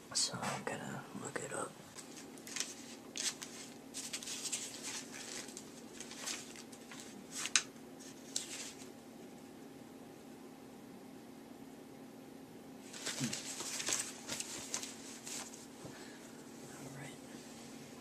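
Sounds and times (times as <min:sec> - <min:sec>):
faint steady hum: 0:00.0 - 0:18.0
notebook pages rustling: 0:01.9 - 0:08.9, 0:12.8 - 0:15.8
page snapping: 0:02.0 - 0:07.7.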